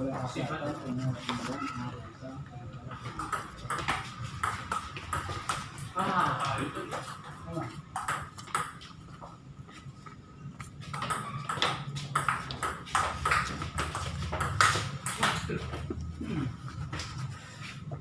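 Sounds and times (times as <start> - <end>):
table tennis ball bouncing: 3.1 - 8.9, 10.6 - 15.7.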